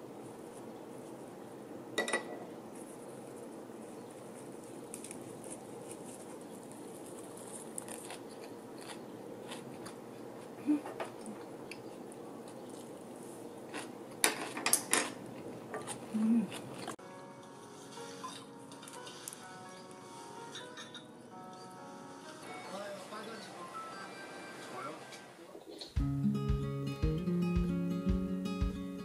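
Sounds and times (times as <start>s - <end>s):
room hum: 0.0s - 20.5s
chewing: 2.8s - 17.0s
soft music: 17.0s - 25.1s, 26.0s - 29.0s.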